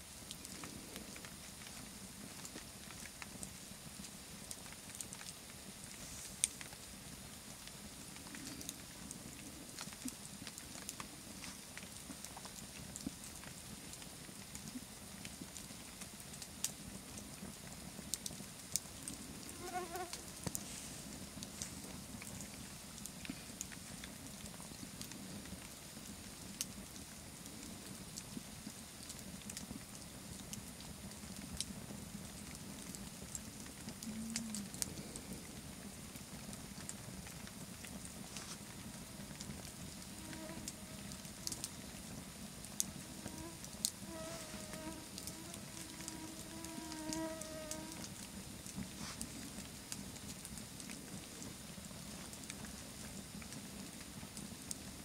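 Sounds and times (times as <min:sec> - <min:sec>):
burning logs crackling: 0:00.0 - 0:55.0
rush of campfire flame: 0:00.0 - 0:55.0.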